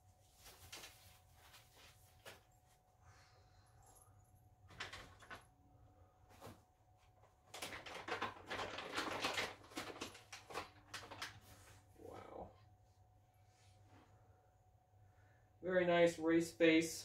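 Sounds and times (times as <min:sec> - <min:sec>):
packaging rustling and scraping: 0:07.5 - 0:11.9.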